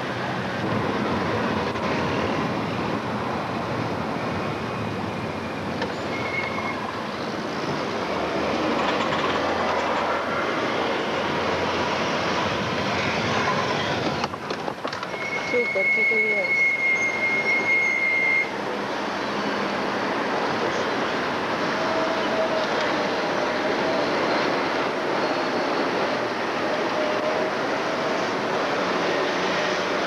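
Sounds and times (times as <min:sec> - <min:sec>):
train car running: 0:00.0 - 0:30.0
high squeal: 0:05.9 - 0:08.0, 0:15.1 - 0:18.6.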